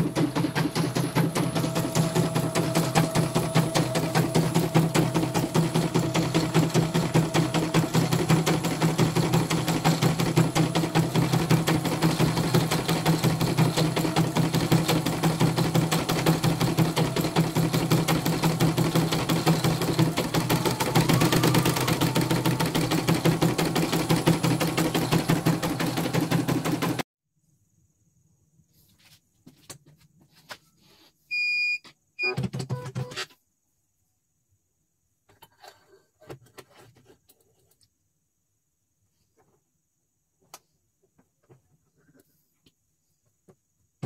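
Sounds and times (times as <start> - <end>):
motor humming: 0.0 - 27.0
embroidery machine needle chatter: 5.0 - 26.1.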